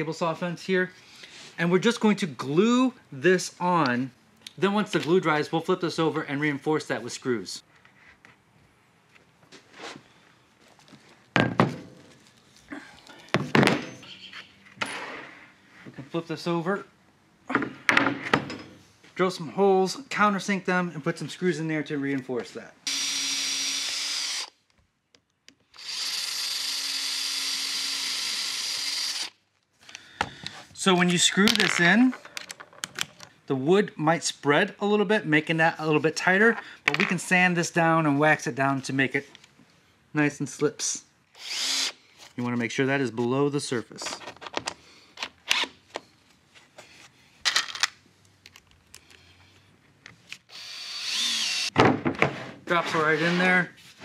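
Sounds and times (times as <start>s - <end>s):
cordless drill running: 22.9s - 24.6s, 25.7s - 29.4s, 41.4s - 42.0s, 50.5s - 51.8s.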